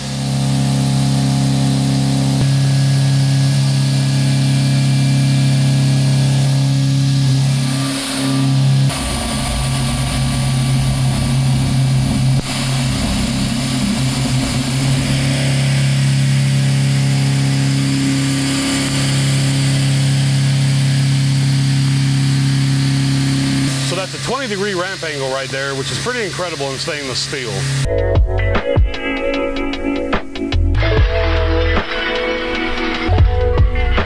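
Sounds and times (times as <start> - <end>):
end mill cutting steel: 0.0 - 27.9.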